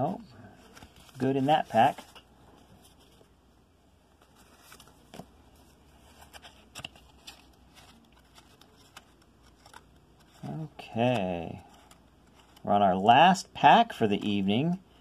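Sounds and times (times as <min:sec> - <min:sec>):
low steady hum: 0:00.0 - 0:15.0
cards rustling and clicking: 0:00.5 - 0:03.3, 0:04.2 - 0:12.8.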